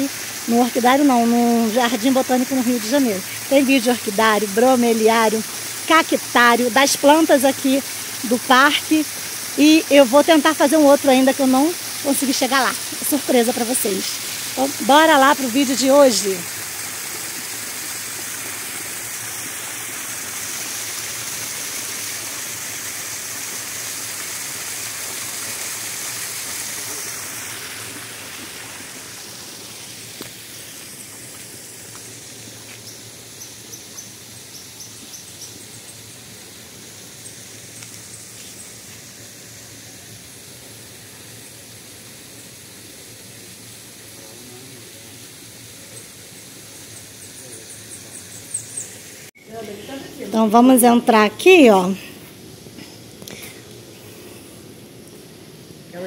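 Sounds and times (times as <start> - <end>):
waterfall rushing: 0.0 - 32.7
outdoor background hiss: 0.0 - 56.0.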